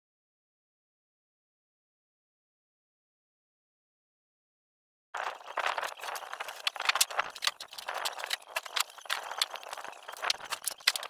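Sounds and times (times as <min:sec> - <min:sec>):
clatter of knocks and clicks: 0:05.2 - 0:11.0.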